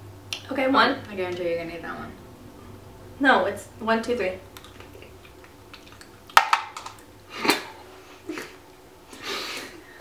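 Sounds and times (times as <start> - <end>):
mouth noises and clicks: 4.5 - 7.6.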